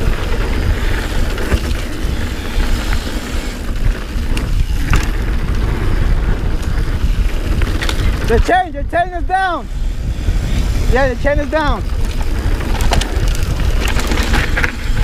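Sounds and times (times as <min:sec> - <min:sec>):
bike knocking over bumps: 0:00.0 - 0:03.1
tyres rumbling on dirt: 0:00.0 - 0:15.0
wind buffeting microphone: 0:00.0 - 0:15.0.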